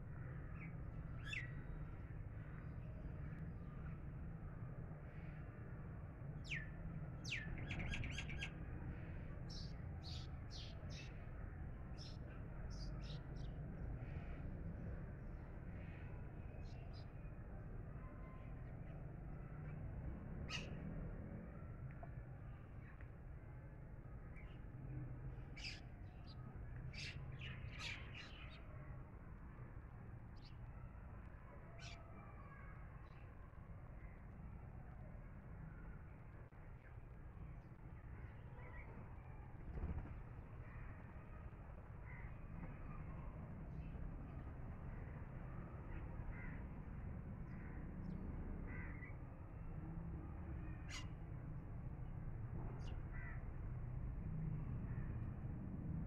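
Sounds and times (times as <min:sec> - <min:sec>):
steady low background noise: 0:00.0 - 0:56.0
sparrows chirping: 0:06.5 - 0:08.5, 0:27.0 - 0:28.6
small songbirds chirping: 0:12.0 - 0:14.3.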